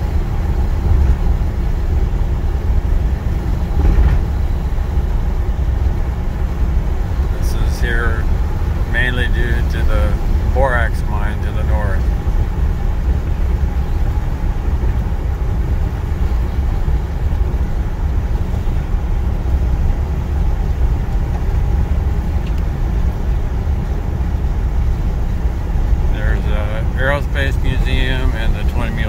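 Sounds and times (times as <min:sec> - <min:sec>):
car driving on highway: 0:00.0 - 0:29.0.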